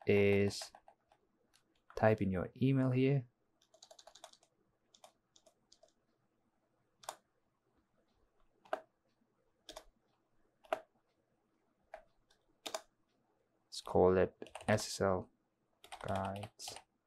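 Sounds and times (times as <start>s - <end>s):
keyboard keystrokes: 3.6s - 6.0s, 11.9s - 12.9s, 15.8s - 16.8s.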